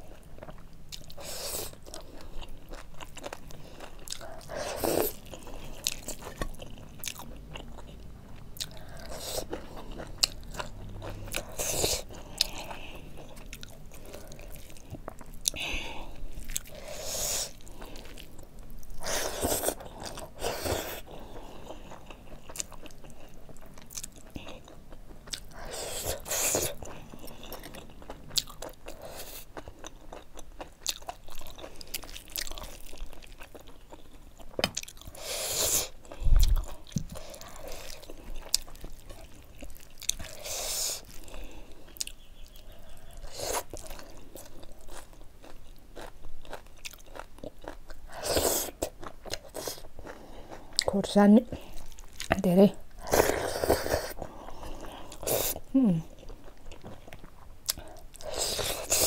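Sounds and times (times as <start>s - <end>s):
person chewing: 0.0s - 59.0s.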